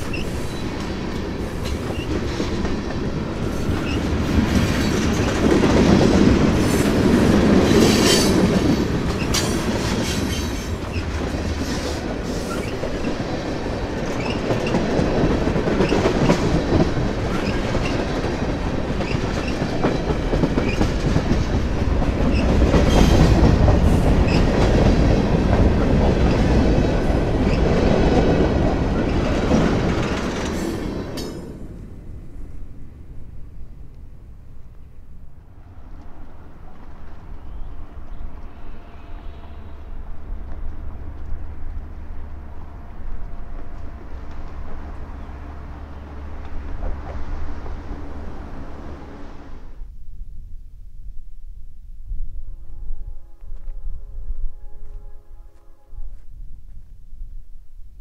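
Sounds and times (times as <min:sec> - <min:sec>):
freight train wheels clacking: 0:00.0 - 0:31.7.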